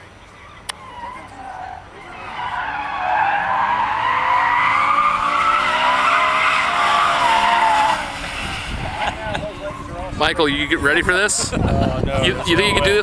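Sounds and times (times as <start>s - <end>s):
car engine running hard: 0.1s - 11.6s
tyres squealing: 0.3s - 10.0s.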